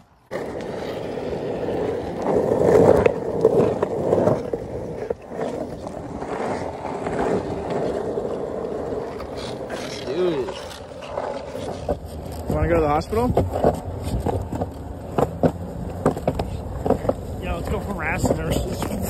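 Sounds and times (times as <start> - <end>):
skateboard wheels rolling on road: 0.0 - 19.0.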